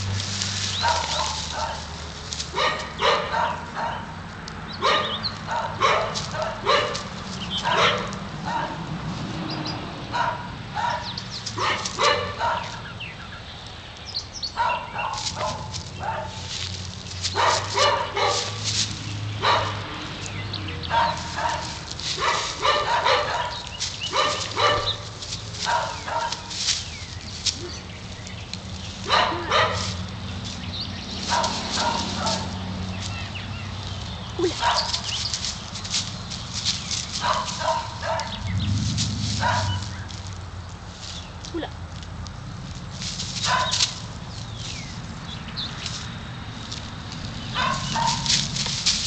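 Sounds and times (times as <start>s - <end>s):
dogs play-barking: 0.8s - 1.9s, 2.5s - 4.1s, 4.8s - 8.8s, 10.1s - 12.9s, 14.6s - 16.5s, 17.3s - 18.8s, 19.4s - 20.0s, 20.8s - 26.6s, 29.0s - 30.1s, 31.2s - 32.8s, 34.4s - 35.1s, 37.2s - 40.1s, 43.4s - 43.9s, 47.5s - 48.6s.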